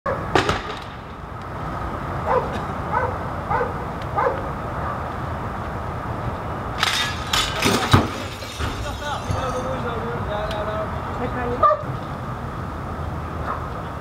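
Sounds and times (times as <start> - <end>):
sharp crack: 0.3 - 1.5
dog barking: 2.2 - 5.0, 11.6 - 11.9, 13.4 - 13.7.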